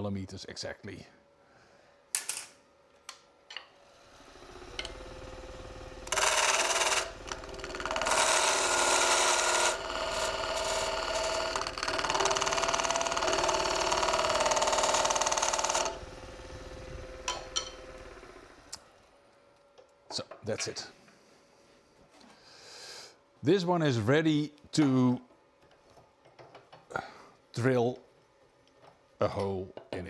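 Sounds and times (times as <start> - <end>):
chisel cutting spinning wood: 4.0 - 18.7
wood lathe running: 4.0 - 18.8.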